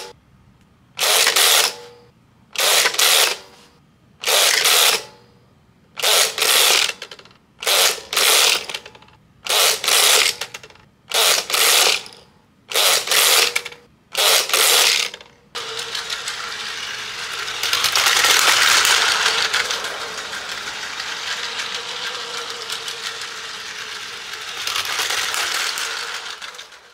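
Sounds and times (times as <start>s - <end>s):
plastic gears ratcheting: 4.2s - 5.0s, 6.0s - 26.9s
small motor whirring: 12.7s - 26.9s.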